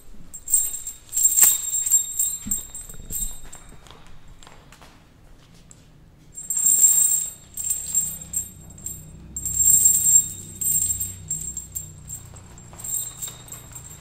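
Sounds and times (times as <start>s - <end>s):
metallic jingling: 0.0s - 3.9s, 6.4s - 14.0s
low steady drone: 6.4s - 14.0s.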